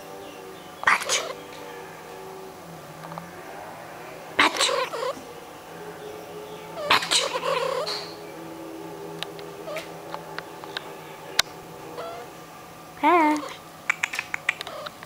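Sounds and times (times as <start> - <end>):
cat yowling: 0.4 - 12.3
faint clicks: 3.0 - 3.3, 13.9 - 15.0.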